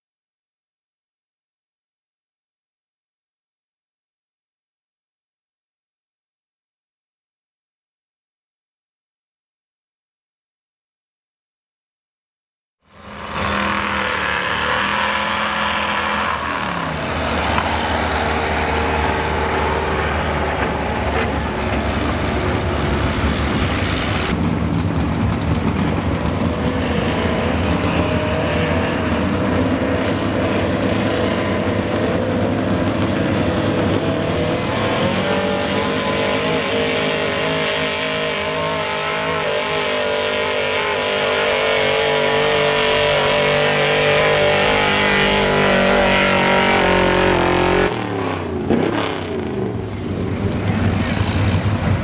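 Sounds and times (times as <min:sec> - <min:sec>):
truck engine revving hard: 0:12.9 - 0:52.0.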